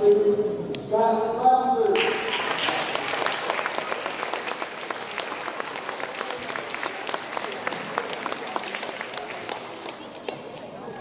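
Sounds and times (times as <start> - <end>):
audience applauding: 2.0 - 10.4.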